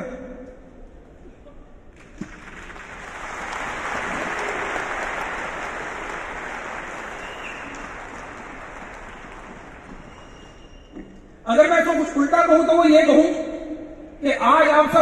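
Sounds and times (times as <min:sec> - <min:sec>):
large audience clapping: 0:02.0 - 0:10.9.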